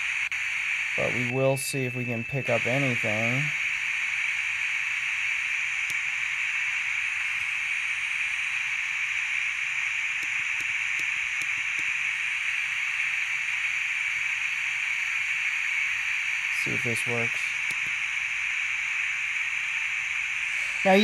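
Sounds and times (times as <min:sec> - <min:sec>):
radio static hiss: 0:00.0 - 0:21.0.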